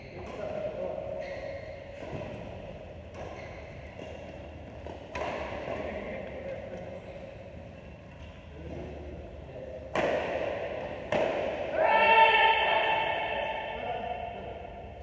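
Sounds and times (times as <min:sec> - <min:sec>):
rackets hitting shuttlecock: 0:03.1 - 0:06.0, 0:09.9 - 0:11.8.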